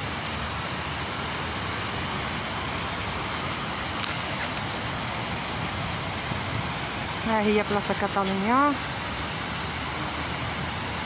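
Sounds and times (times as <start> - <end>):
city square background hiss and rumble: 0.0 - 11.0.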